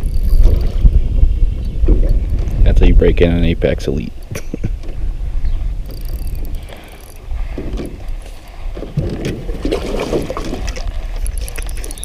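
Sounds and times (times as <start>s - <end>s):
wind rumbling on microphone: 0.0s - 12.0s
water splashes: 6.7s - 12.0s.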